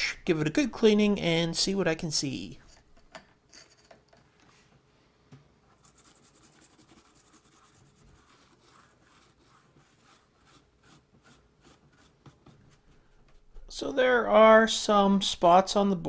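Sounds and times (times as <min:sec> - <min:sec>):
toothbrush scrubbing circuit board: 0:05.8 - 0:12.2.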